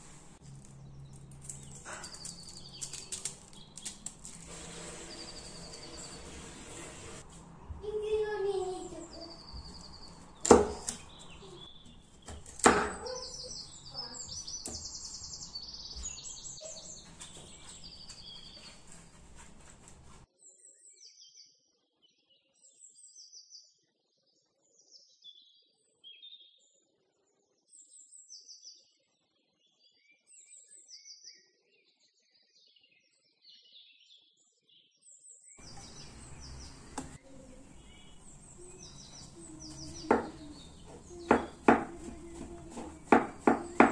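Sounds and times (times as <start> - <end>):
background noise: 0.0 - 43.9
small birds chirping: 0.0 - 43.9
knife cutting cabbage on board: 10.4 - 11.1, 39.7 - 43.9.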